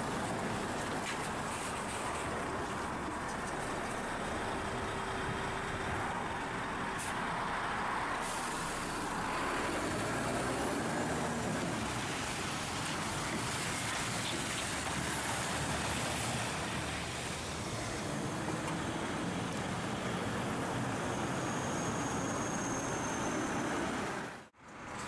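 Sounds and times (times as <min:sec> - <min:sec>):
lorry diesel engine: 0:00.0 - 0:25.0
tyre and road noise: 0:00.0 - 0:25.0.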